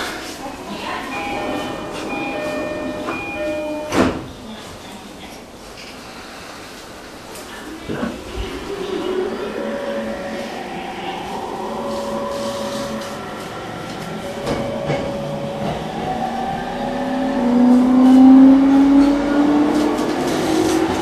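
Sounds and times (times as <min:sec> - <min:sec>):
train running rumble: 0:07.8 - 0:21.0.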